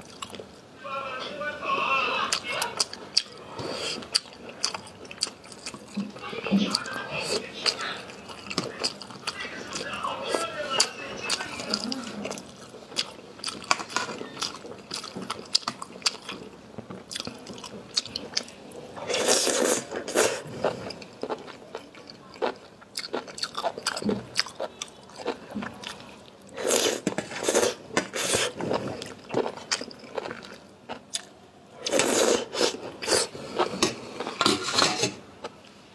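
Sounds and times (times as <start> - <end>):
chewing: 2.3 - 34.6
slurping noodles: 19.0 - 21.1, 26.6 - 29.1, 31.8 - 35.2.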